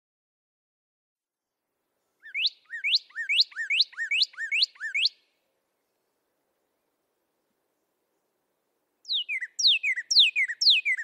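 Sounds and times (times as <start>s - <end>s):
cardinal singing whistled notes: 2.2s - 5.3s, 9.0s - 11.0s.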